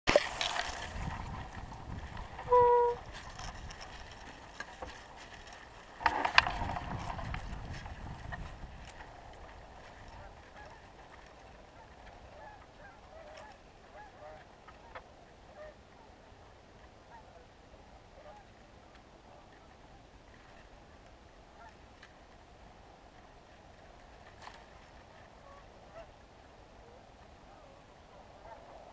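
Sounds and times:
geese honking: 0:02.5 - 0:03.0.

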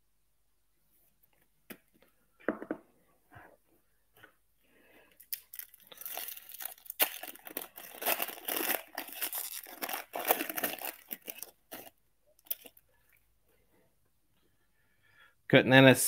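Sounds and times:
foil wrapper tearing and crinkling: 0:05.2 - 0:12.8.

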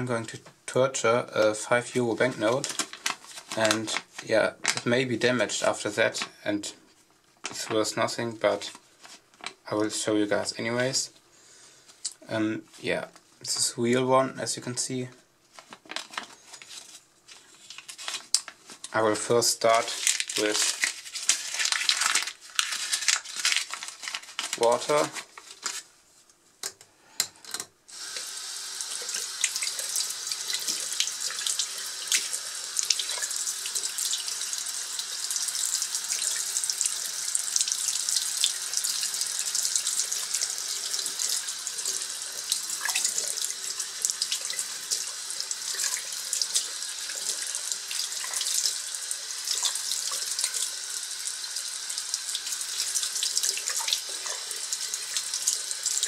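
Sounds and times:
tap water running into sink: 0:27.9 - 0:56.0.

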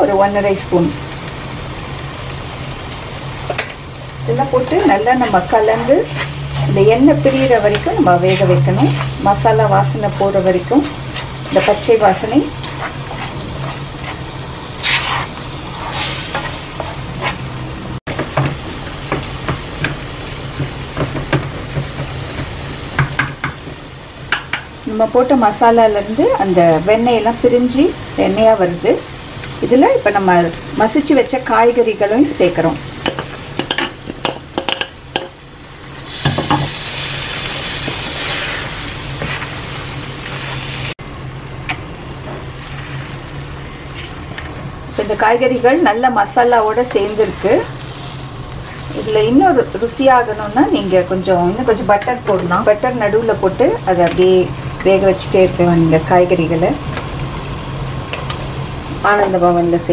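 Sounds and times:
sauce sizzling in a pan: 0:00.0 - 0:59.9
wooden spoon scraping a pan: 0:04.7 - 0:09.4, 0:10.2 - 0:17.6, 0:37.7 - 0:39.7, 0:43.9 - 0:44.4.

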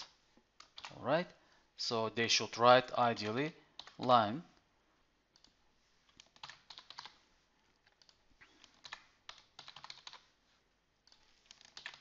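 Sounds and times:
computer keyboard typing: 0:00.0 - 0:01.0, 0:03.2 - 0:04.2, 0:05.4 - 0:07.2, 0:07.8 - 0:10.3, 0:11.0 - 0:12.0.

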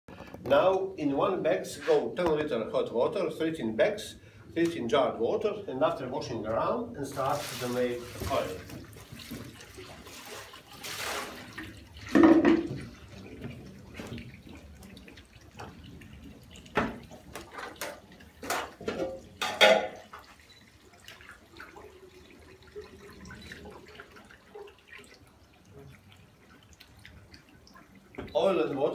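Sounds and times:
liquid trickling and dripping: 0:06.3 - 0:28.9
splashes and knocks: 0:07.1 - 0:20.4.

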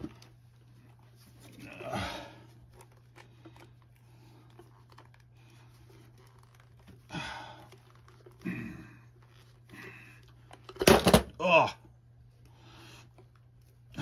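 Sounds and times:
man straining breaths: 0:07.0 - 0:10.4.

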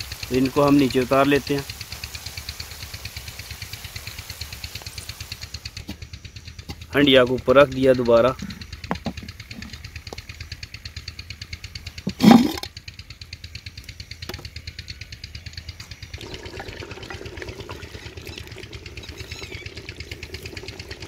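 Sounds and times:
engine thudding: 0:04.4 - 0:21.0.

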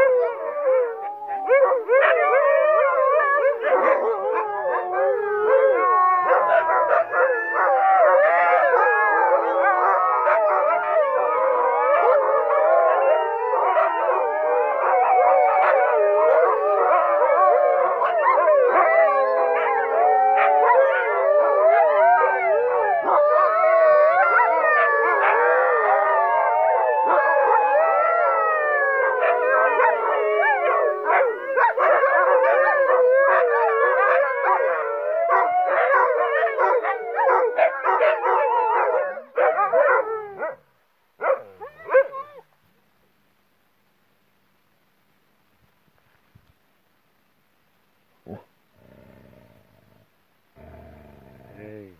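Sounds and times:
huskies howling: 0:00.0 - 0:40.6.

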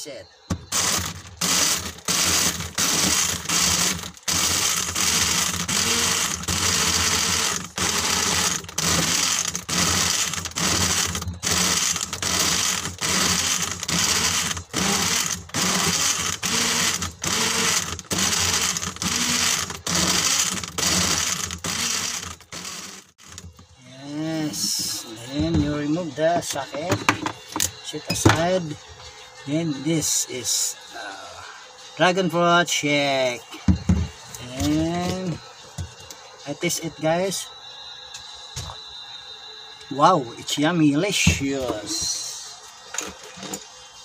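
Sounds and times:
mini blender running: 0:00.5 - 0:23.6.

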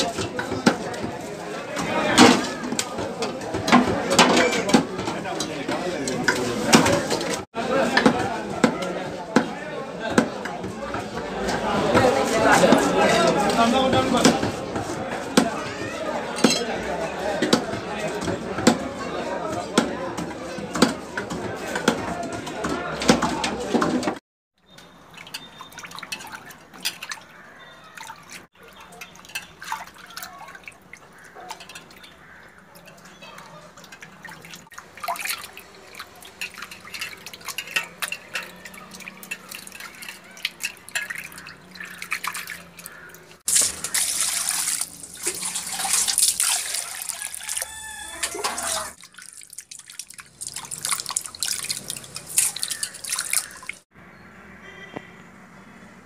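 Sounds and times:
water splashing in a steel bowl: 0:24.6 - 0:53.9.

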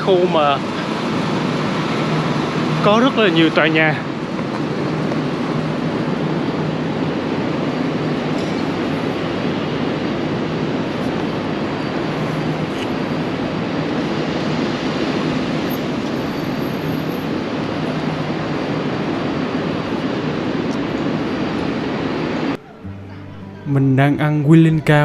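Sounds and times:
city street rumble: 0:00.0 - 0:25.0.

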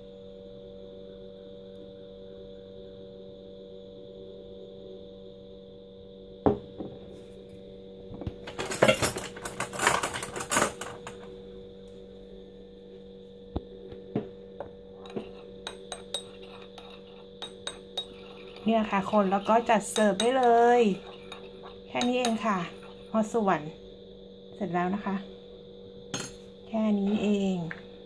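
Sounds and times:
electrical hum: 0:00.0 - 0:28.0
clatter and handling: 0:08.3 - 0:11.3
metal spoon clinking against bowl: 0:15.0 - 0:23.0, 0:26.2 - 0:26.4.

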